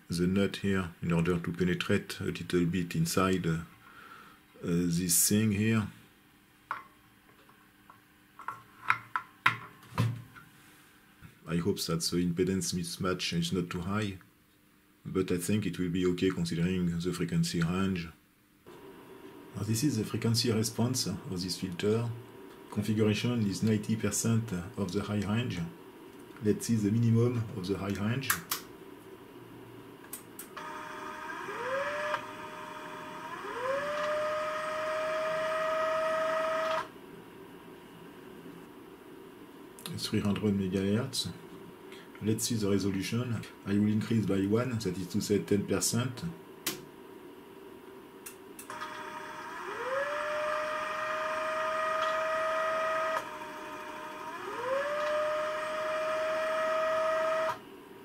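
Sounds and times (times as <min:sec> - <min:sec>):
stepper motor whine: 0:30.6 - 0:36.9, 0:48.7 - 0:57.6.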